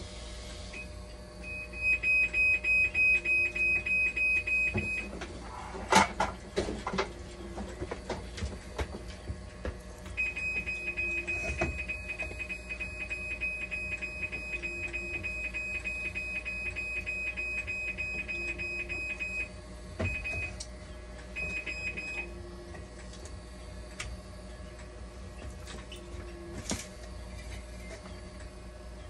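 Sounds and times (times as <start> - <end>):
low steady hum: 0.0 - 29.0
machine alarm beeping rapidly: 1.4 - 5.1, 10.2 - 20.6, 21.4 - 22.3.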